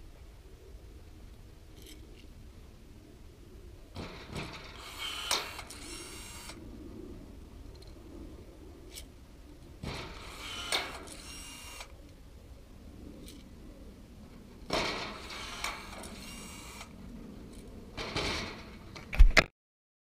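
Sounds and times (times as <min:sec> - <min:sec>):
rivet gun motor whirring: 0:04.7 - 0:06.6, 0:09.9 - 0:11.9, 0:15.0 - 0:16.9.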